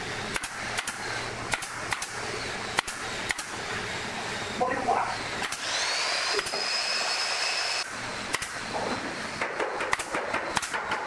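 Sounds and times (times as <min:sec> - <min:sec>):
nail gun shots: 0:00.3 - 0:02.2, 0:02.8 - 0:03.5, 0:05.4 - 0:05.7, 0:08.3 - 0:08.6, 0:09.4 - 0:11.0.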